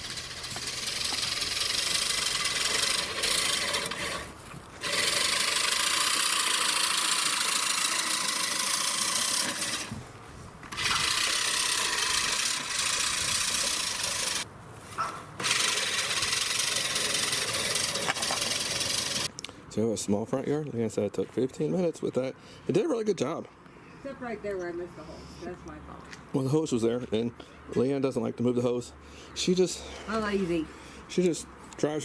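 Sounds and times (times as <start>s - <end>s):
reel mower whirring through grass: 0.0s - 10.0s, 10.7s - 14.5s, 15.4s - 19.3s.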